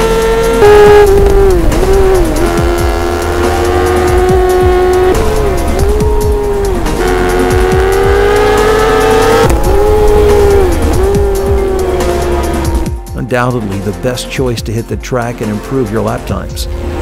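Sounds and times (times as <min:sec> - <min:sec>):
motorcycle engines at high revs: 0:00.0 - 0:12.9.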